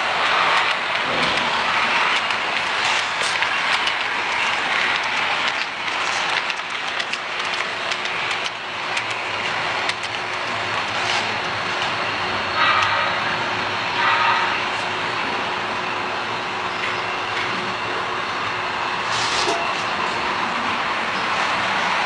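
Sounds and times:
small track clicks: 0.0s - 12.0s, 12.6s - 13.0s
model train wheels rattling on rail: 0.0s - 13.2s.

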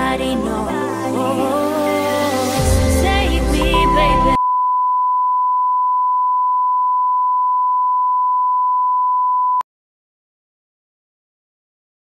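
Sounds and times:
steady high test tone beep: 3.6s - 9.6s.

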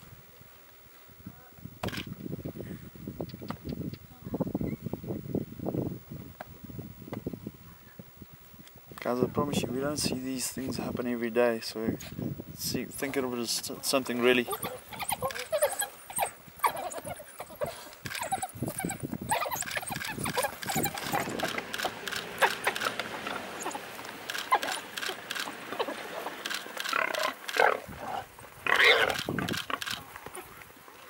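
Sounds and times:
dogs scrabbling in loose dirt: 14.2s - 31.0s
high squeals and yelps: 14.5s - 21.5s.

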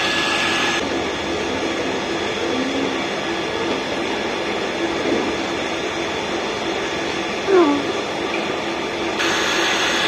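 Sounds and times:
electric water pump whirring: 0.0s - 2.1s, 9.0s - 10.0s.

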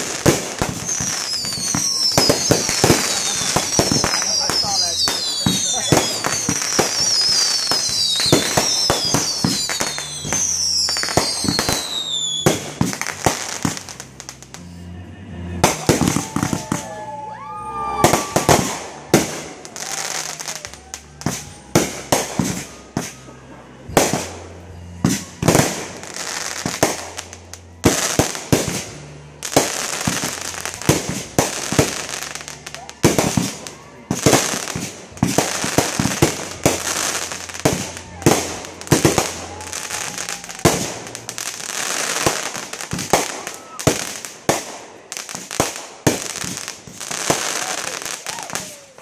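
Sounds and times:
falling firework whistles: 0.0s - 14.0s, 15.6s - 27.1s, 45.3s - 49.0s
fireworks bangs and crackling: 0.0s - 49.0s.

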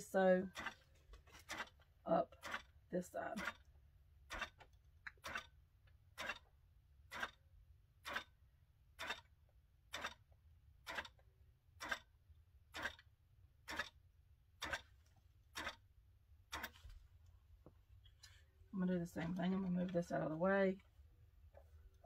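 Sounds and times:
quilting machine needle clacking: 0.5s - 2.8s, 3.4s - 8.4s, 9.0s - 11.2s, 11.8s - 12.1s, 12.7s - 14.0s, 14.6s - 15.9s, 16.5s - 16.9s.

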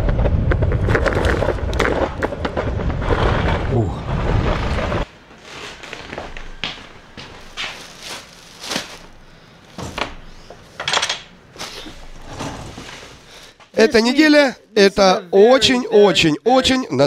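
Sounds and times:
clothes and plastic bag rustling: 4.6s - 13.9s.

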